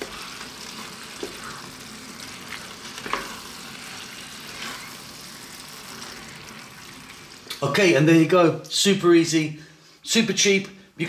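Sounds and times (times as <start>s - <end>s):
wooden spoons scraping a pan: 0.0s - 6.9s
pasta sizzling in a frying pan: 0.0s - 7.5s.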